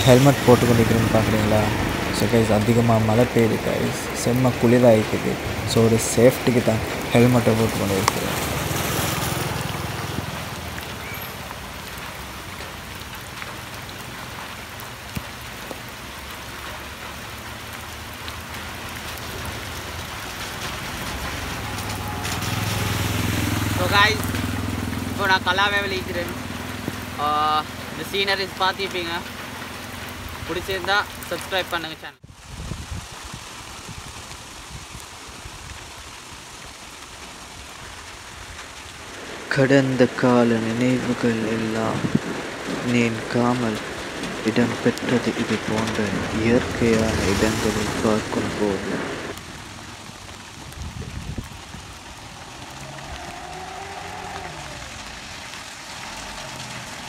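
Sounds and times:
heavy rain on wet road: 0.0s - 57.0s
motorcycle engine: 18.5s - 28.0s
small vehicle engine: 52.0s - 57.0s.

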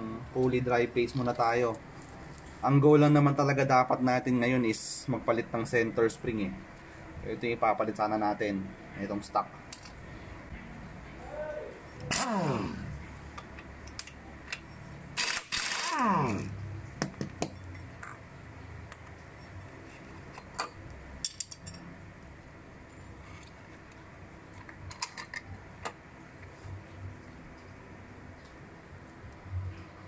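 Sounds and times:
impact wrench whine: 12.1s - 13.0s, 15.2s - 16.6s.

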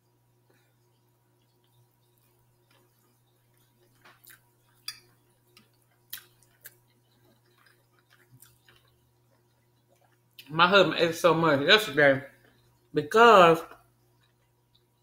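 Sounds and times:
person chewing: 0.7s - 10.5s.

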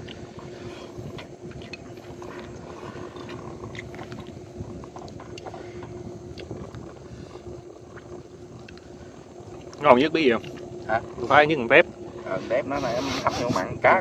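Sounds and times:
steady low hum: 0.0s - 14.0s
chewing: 0.8s - 5.6s, 6.3s - 6.8s.

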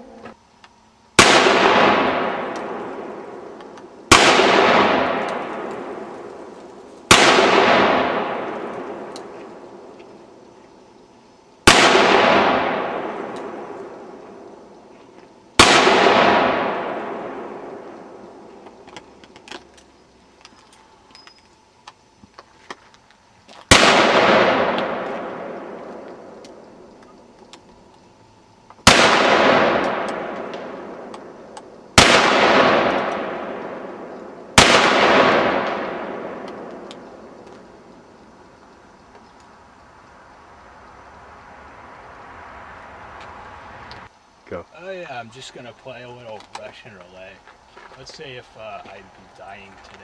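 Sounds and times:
handgun shots echoing: 1.2s - 6.4s, 7.1s - 9.4s, 11.7s - 14.0s, 15.6s - 18.2s, 23.7s - 26.5s, 28.8s - 37.6s.

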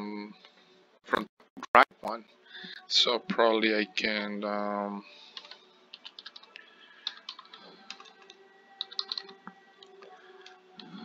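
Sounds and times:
typing on computer keyboard: 5.4s - 9.4s.

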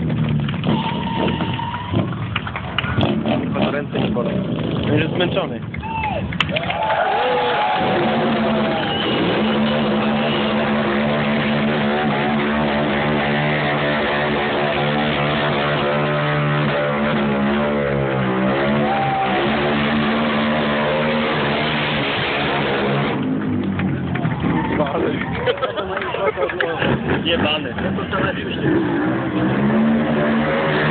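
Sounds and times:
motorcycle engine revving high: 7.6s - 24.9s, 26.8s - 30.9s.

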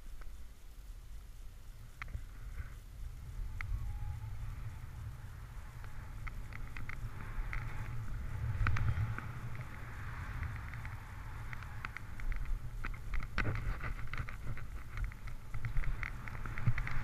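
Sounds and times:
wind buffeting microphone: 1.7s - 17.0s
scattered clicks: 3.4s - 17.0s.

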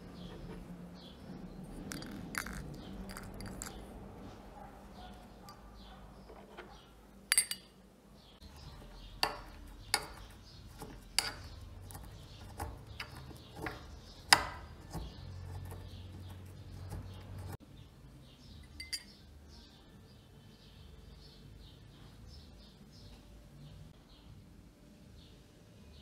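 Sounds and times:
pestle clinking in metal mortar: 1.8s - 3.8s, 7.3s - 7.8s, 9.0s - 15.1s, 18.7s - 19.2s.

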